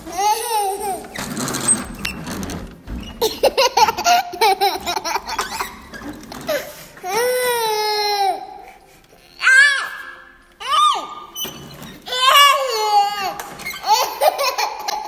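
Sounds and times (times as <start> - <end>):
little girl laughing: 3.2 - 5.9, 12.7 - 15.0.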